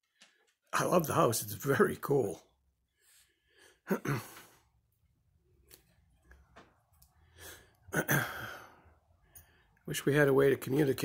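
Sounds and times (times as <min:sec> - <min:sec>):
man sighing: 0:03.8 - 0:04.6, 0:07.3 - 0:08.9.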